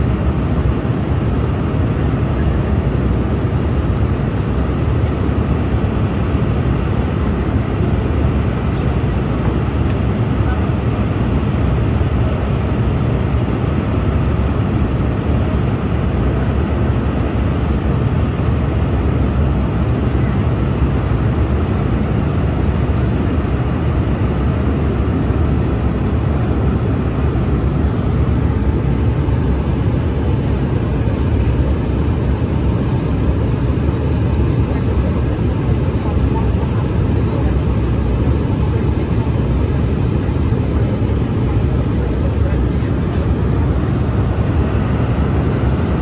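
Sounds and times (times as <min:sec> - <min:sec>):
airliner cabin airflow: 0:00.0 - 0:46.0
jet engine hum: 0:00.0 - 0:46.0.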